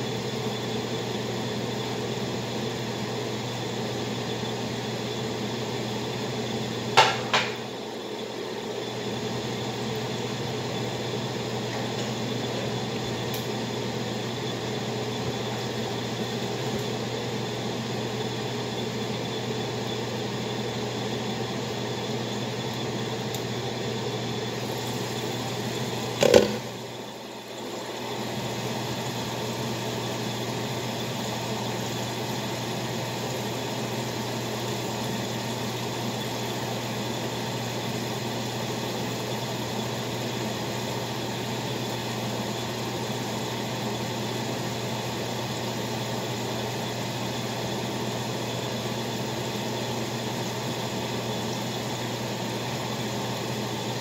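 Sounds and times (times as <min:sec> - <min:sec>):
kitchen fan whirring: 0:00.0 - 0:54.0.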